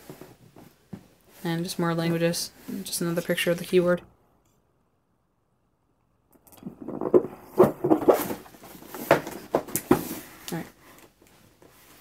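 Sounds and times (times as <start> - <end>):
box scraping on table: 6.9 - 10.2.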